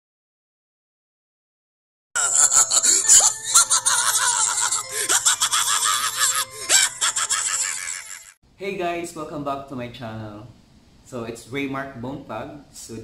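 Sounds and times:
music: 0:02.2 - 0:07.4
wavering drawn-out laugh: 0:02.2 - 0:08.4.

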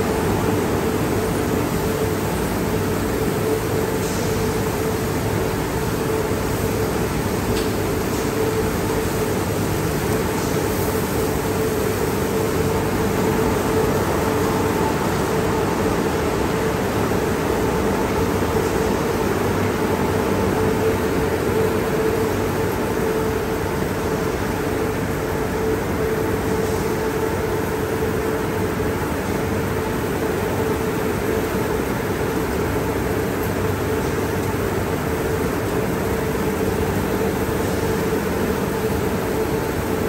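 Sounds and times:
machinery hum: 0:00.0 - 0:40.0.

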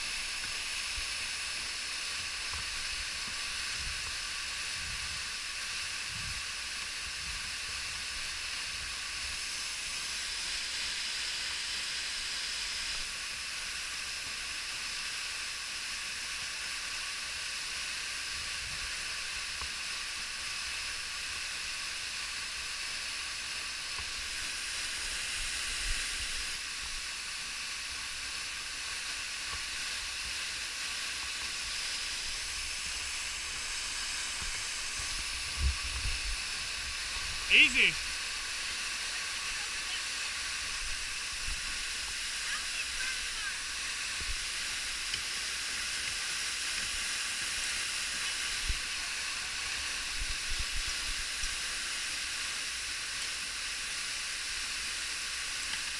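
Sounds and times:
waterfall rushing: 0:00.0 - 0:55.9.

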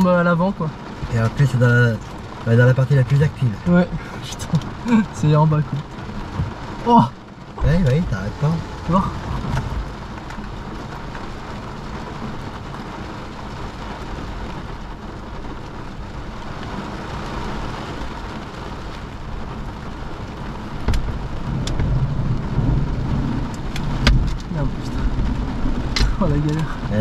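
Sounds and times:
rain beating on car windshield: 0:00.0 - 0:27.0
low rumble: 0:05.8 - 0:12.9.

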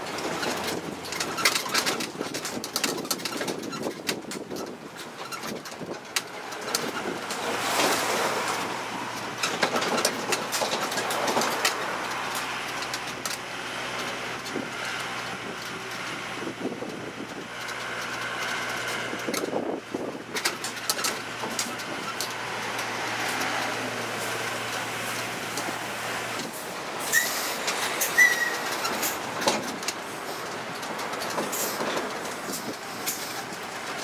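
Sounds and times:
clicks and rattles: 0:00.0 - 0:13.4, 0:14.0 - 0:23.9, 0:27.2 - 0:34.0
low engine hum: 0:00.0 - 0:34.0.

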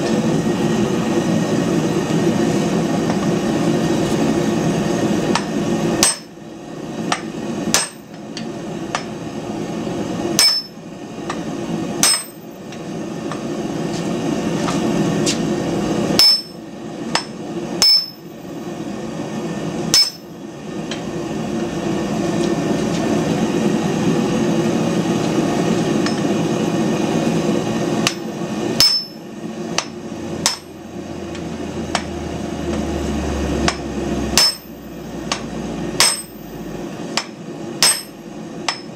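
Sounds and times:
steady background roar: 0:00.0 - 0:38.9
hammer striking hot steel: 0:05.3 - 0:06.4, 0:07.0 - 0:09.2, 0:10.3 - 0:13.5, 0:16.1 - 0:18.4, 0:19.9 - 0:21.1, 0:26.0 - 0:26.4, 0:28.0 - 0:32.9, 0:33.6 - 0:38.9.

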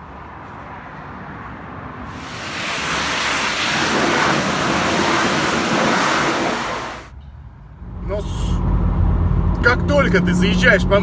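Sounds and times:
high-pressure water spray hissing: 0:02.1 - 0:07.1.

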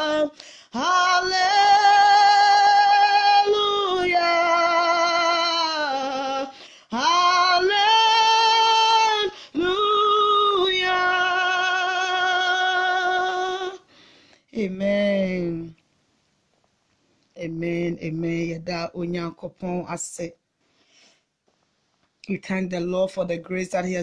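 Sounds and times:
woman singing: 0:00.0 - 0:13.9.

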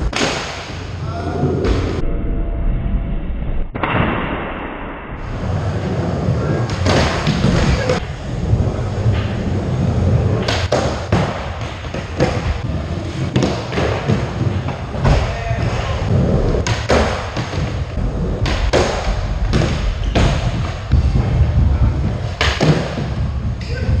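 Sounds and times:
skateboard wheels rolling: 0:05.2 - 0:24.0
skateboard clacks and thumps: 0:10.3 - 0:24.0.

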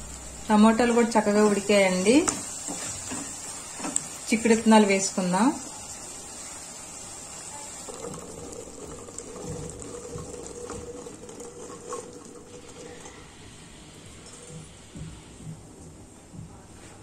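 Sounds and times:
liquid pouring and splashing: 0:07.7 - 0:13.6.

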